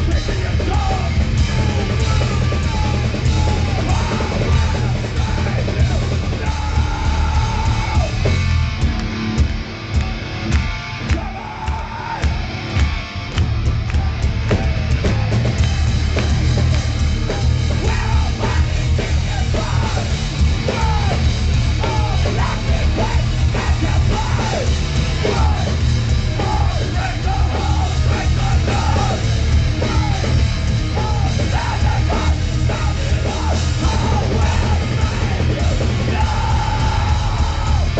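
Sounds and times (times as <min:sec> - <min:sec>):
person shouting lead vocal: 0:00.0 - 0:08.2, 0:11.1 - 0:12.3, 0:17.7 - 0:25.8, 0:26.4 - 0:29.2, 0:29.8 - 0:37.9
bass guitar: 0:00.0 - 0:37.9
distorted electric guitars: 0:00.0 - 0:37.9
drums: 0:00.0 - 0:37.9.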